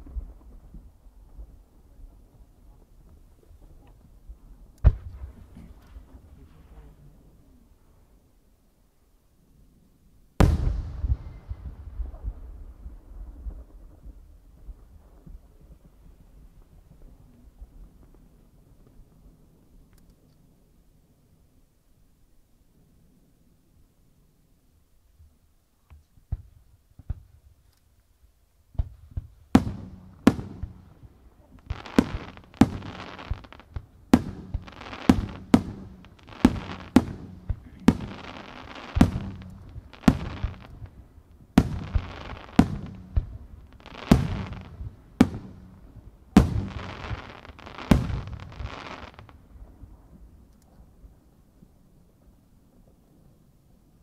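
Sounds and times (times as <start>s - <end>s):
faint firework thumps: 4.8s - 7.0s, 25.2s - 27.4s, 28.7s - 49.8s
firework shells bursting with crackle: 28.7s - 49.4s.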